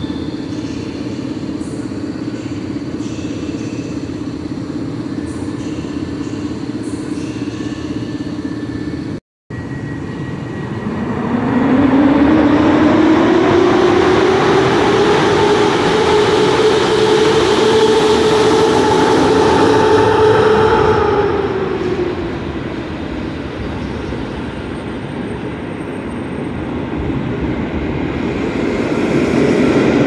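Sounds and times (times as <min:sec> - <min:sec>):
train moving: 0:00.0 - 0:30.0
rising whine: 0:08.4 - 0:24.7.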